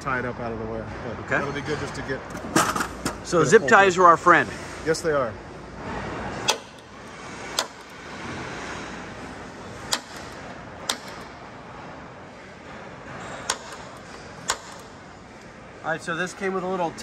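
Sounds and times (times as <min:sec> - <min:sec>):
sharp knocks: 0:13.4 - 0:15.0.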